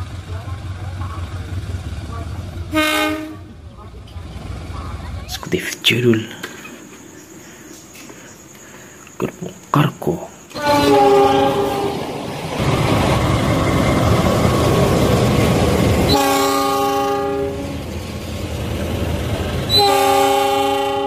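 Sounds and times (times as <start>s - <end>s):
passing train rumble and rattle: 0.0s - 21.0s
locomotive air horn blasts: 2.7s - 3.5s, 10.5s - 12.0s, 16.1s - 17.8s, 19.7s - 21.0s.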